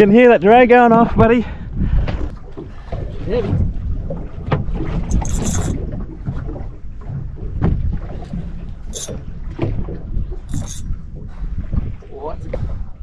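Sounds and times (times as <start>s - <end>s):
wind rumble on microphone: 0.0s - 13.0s
fishing reel drag buzzing: 5.1s - 5.8s, 8.9s - 9.2s, 10.5s - 10.9s.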